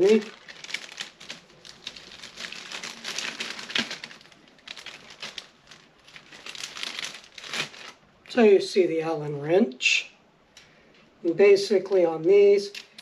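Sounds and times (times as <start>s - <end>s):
plastic bag crinkling: 0.0s - 8.1s.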